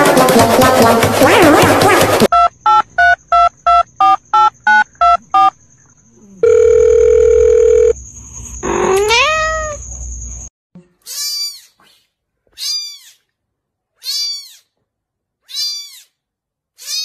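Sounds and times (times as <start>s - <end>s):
telephone keypad beeps: 2.3s - 5.5s
telephone ringing tone: 6.4s - 8.0s
cat meowing: 8.7s - 9.8s, 12.5s - 13.2s, 14.0s - 14.7s, 15.4s - 16.2s, 16.8s - 17.0s.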